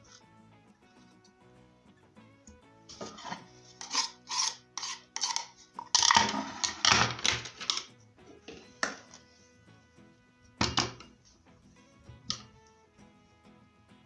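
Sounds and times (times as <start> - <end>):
soft background music: 0.0 - 14.0
plastic spoon scraping glass bowl: 2.9 - 9.4
glass bowl knocking on wooden plate: 10.6 - 11.0.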